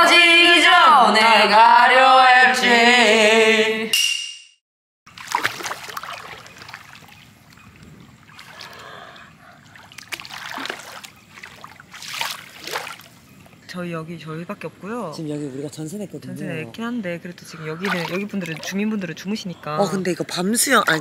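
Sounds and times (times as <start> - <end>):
pool water splashing: 5.1 - 13.6, 17.5 - 21.0.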